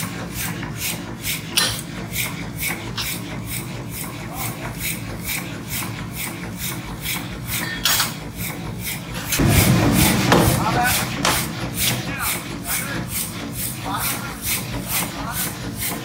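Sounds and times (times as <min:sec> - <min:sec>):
steady low hum: 0:09.2 - 0:14.8
tool rasping on metal: 0:12.3 - 0:16.0.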